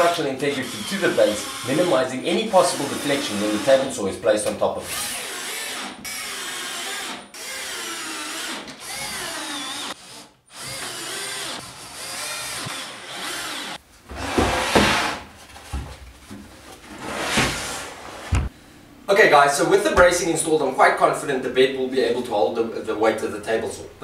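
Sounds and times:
drill driving screws into wood: 0.5s - 2.0s, 4.9s - 13.8s
wooden knocks and scrapes: 14.0s - 18.5s.

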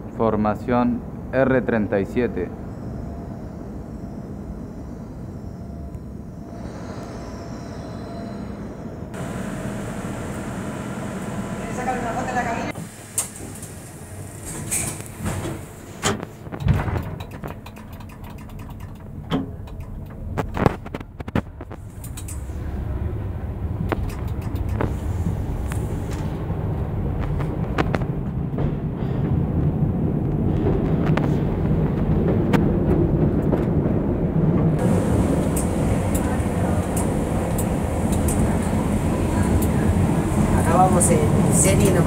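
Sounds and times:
wheels rumbling on rail: 2.4s - 42.0s
train controller clicks and knocks: 16.0s - 20.7s, 23.9s - 24.9s.

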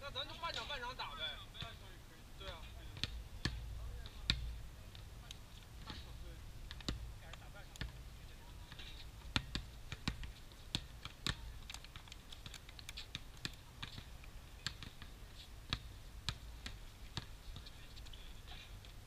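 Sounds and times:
basketball bouncing: 2.4s - 5.2s, 5.8s - 15.1s, 15.7s - 17.8s
sneakers on court: 5.8s - 19.0s.

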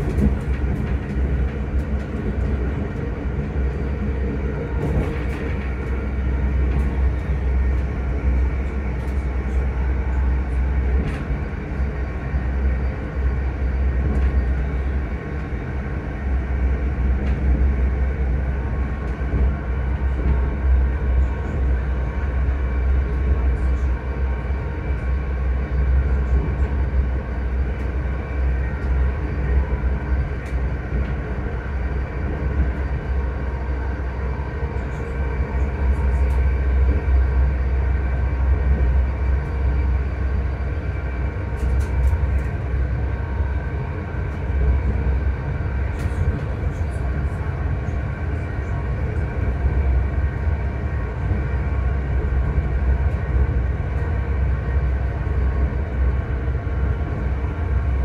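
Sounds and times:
deep running rumble: 0.0s - 58.0s.

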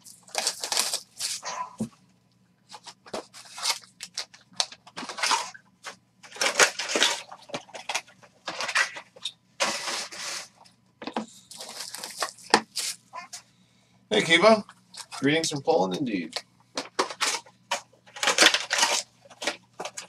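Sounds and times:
plastic wrap and foil crinkling: 0.0s - 1.6s, 2.7s - 10.6s, 11.4s - 13.3s, 17.0s - 20.0s.

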